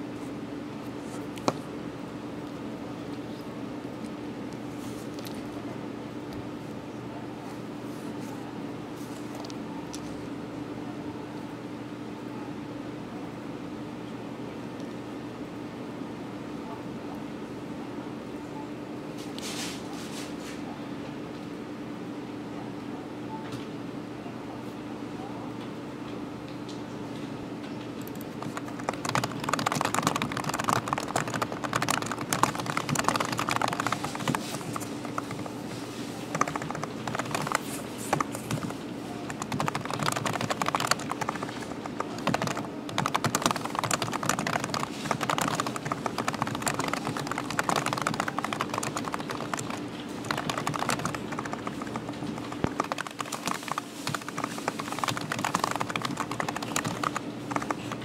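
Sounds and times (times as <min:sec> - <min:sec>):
steady low hum: 0:27.4 - 0:58.0
fast typing on keyboard: 0:28.0 - 0:58.0.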